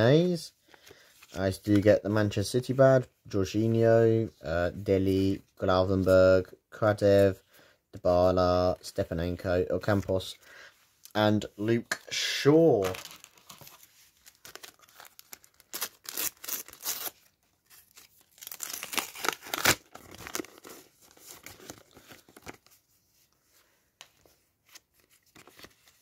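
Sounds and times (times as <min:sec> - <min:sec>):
wrapper ripping and crinkling: 0:12.8 - 0:22.6.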